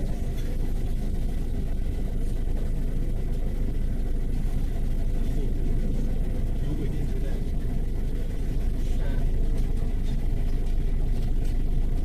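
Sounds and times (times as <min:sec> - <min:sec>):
bus engine idling: 0:00.0 - 0:12.0.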